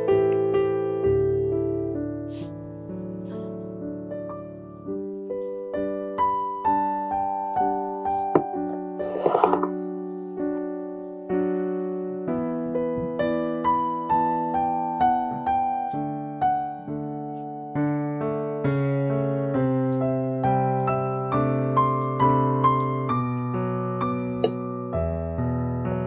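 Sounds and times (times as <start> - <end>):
gentle piano melody: 0.0 - 26.0.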